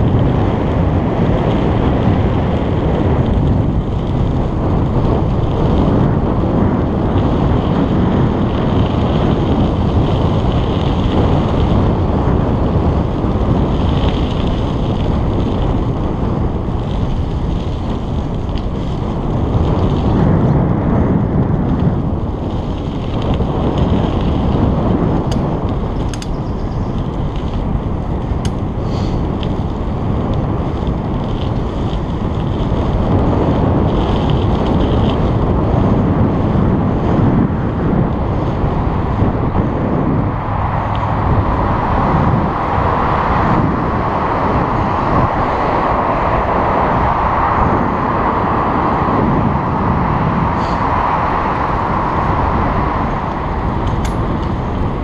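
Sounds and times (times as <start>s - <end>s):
tyre and road noise: 0.0s - 55.0s
wind buffeting microphone: 0.0s - 55.0s
sharp clicks: 26.0s - 26.4s.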